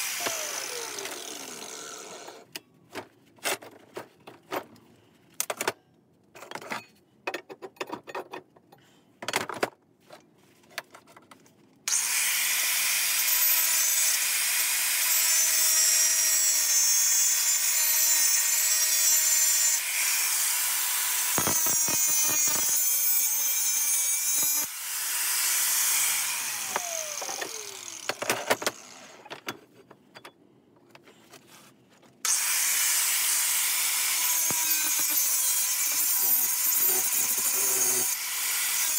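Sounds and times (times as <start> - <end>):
angle grinder cutting steel: 0.0 - 2.4, 11.9 - 29.2, 32.3 - 38.9
knocks and handling clatter: 2.8 - 11.7.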